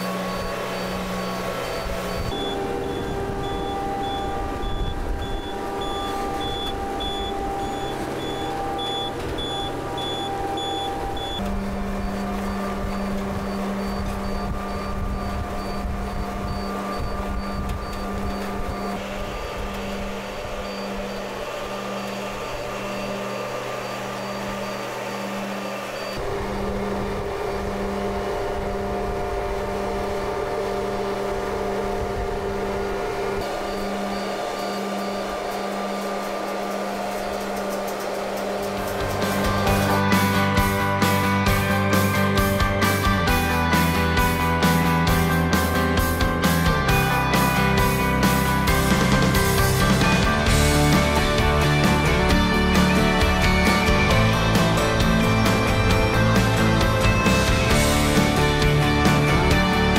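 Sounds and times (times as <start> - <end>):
high warning beeps: 0.0 - 28.3, 29.8 - 45.5
heavy vehicle engine humming: 0.0 - 59.9.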